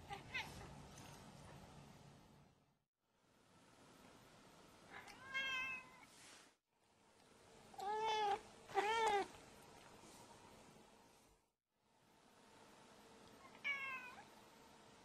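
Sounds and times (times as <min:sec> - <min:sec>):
cat meowing: 0:05.0 - 0:06.0, 0:07.8 - 0:09.3, 0:13.4 - 0:14.2.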